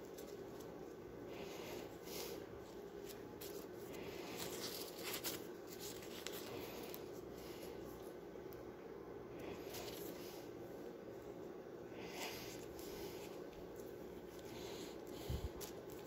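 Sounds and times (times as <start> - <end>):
leaf and tape rustling: 0.0 - 8.1, 12.0 - 16.0
steady low hum: 0.0 - 16.0.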